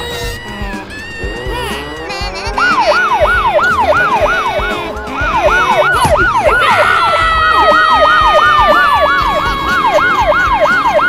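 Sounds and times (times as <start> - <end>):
police siren fast cycle: 2.6 - 11.0
steady siren tone sliding lower: 2.7 - 11.0.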